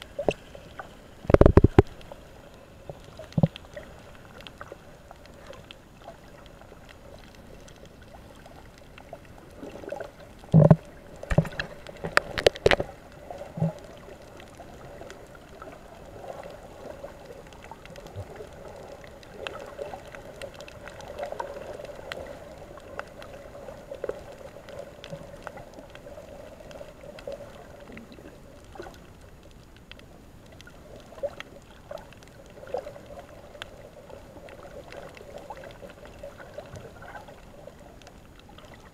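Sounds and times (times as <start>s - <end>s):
muffled underwater hum: 0.0s - 20.8s.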